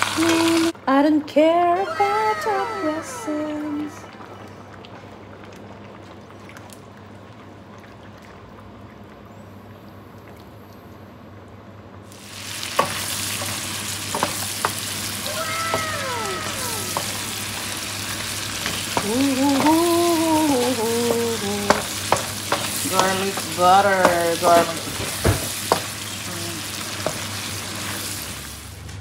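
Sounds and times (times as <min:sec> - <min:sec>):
broth simmering hiss: 0:00.0 - 0:00.8, 0:12.0 - 0:28.9
shrimp sizzling in butter: 0:12.1 - 0:28.7.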